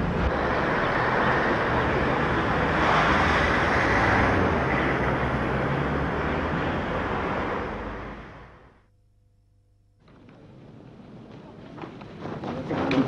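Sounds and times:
street traffic noise: 0:00.0 - 0:08.8, 0:10.1 - 0:13.0
vehicle passing: 0:00.0 - 0:08.8.

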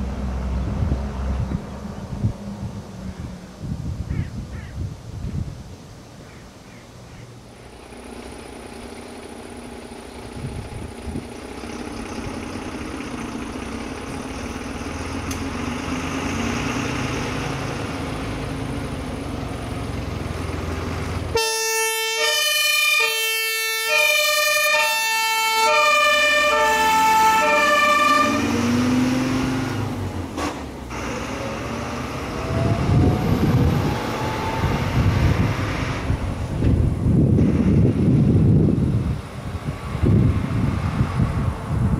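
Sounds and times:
fire engine engine: 0:00.0 - 0:04.0, 0:07.0 - 0:41.9
road noise: 0:00.0 - 0:41.9
two-tone siren: 0:21.4 - 0:28.8, 0:32.2 - 0:35.0.

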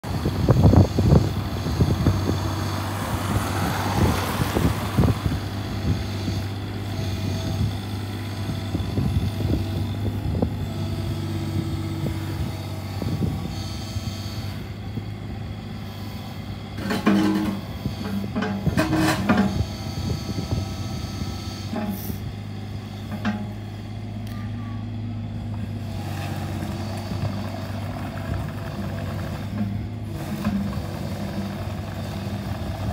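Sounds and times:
diesel engine running: 0:00.0 - 0:32.9
excavator bucket clanking: 0:16.8 - 0:19.7, 0:23.1 - 0:23.7.

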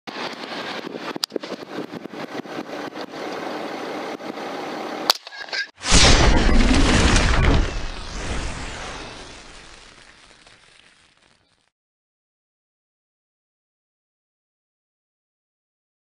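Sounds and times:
rumbling blast sound effect: 0:05.8 - 0:10.0.

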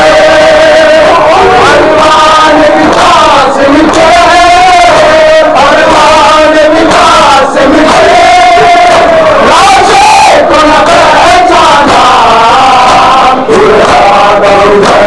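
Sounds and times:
men chanting together: 0:00.0 - 0:15.0.

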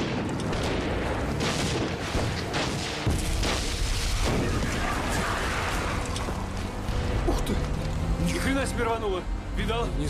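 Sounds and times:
explosions booming: 0:00.0 - 0:05.8.

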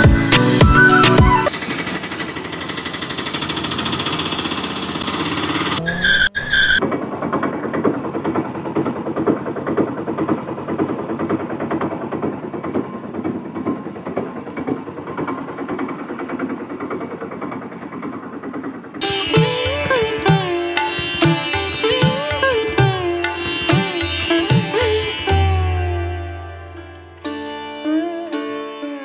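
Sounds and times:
small engine chattering: 0:01.5 - 0:25.4
high steady tone: 0:19.0 - 0:27.5.

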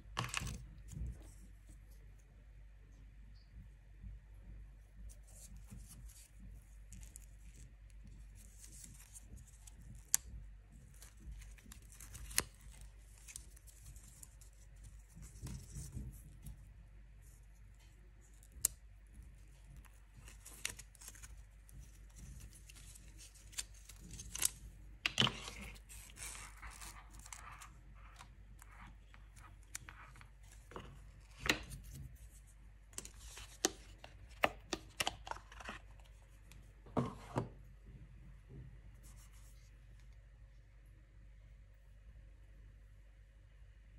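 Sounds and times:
paper rustling and tearing: 0:19.9 - 0:32.4.

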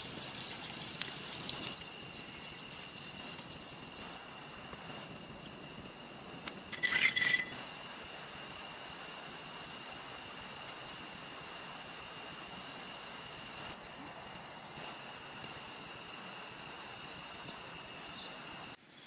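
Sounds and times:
night insects droning: 0:00.0 - 0:19.0
tableware clinking: 0:06.7 - 0:07.6.

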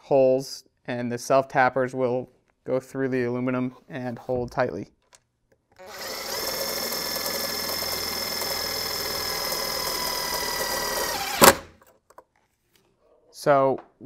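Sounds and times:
impact driver motor whine: 0:05.8 - 0:11.7.

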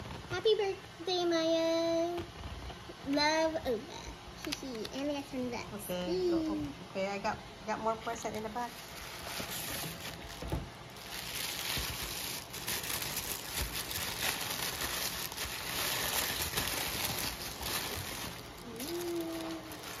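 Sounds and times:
tissue paper rustling: 0:08.6 - 0:20.0.

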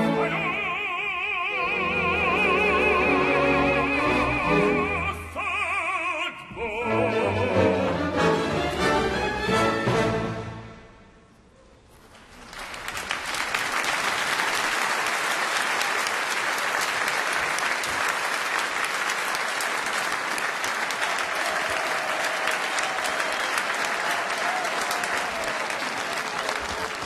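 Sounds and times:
audience applauding: 0:12.0 - 0:27.0.

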